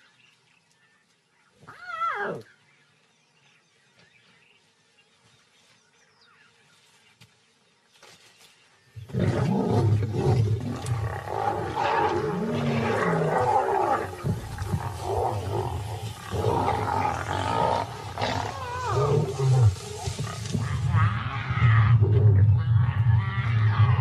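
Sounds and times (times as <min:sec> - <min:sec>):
lions snarling and calling: 0:09.1 - 0:24.0.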